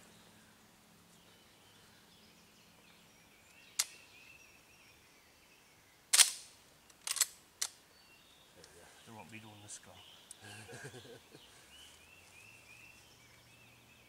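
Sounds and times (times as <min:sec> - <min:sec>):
faint birdsong: 0:00.0 - 0:14.0
shotgun action clicking: 0:06.1 - 0:07.8.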